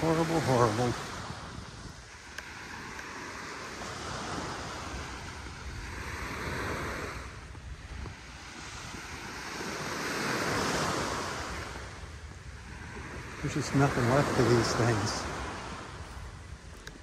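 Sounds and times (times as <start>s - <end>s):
surf washing up on beach: 0.0s - 17.0s
wind rumbling on microphone: 0.0s - 17.0s.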